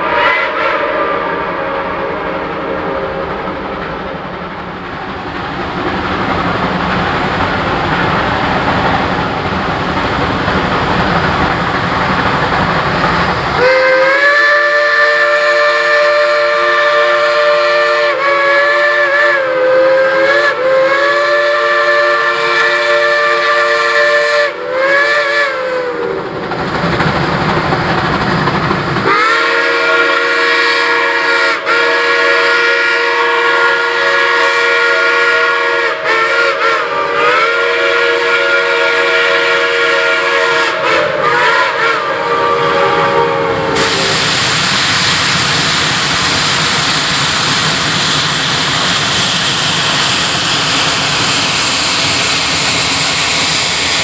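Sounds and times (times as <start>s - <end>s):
steam whistle blast: 0.0s - 3.4s, 13.6s - 26.2s, 29.1s - 48.3s
steam locomotive rumbling: 0.0s - 54.0s.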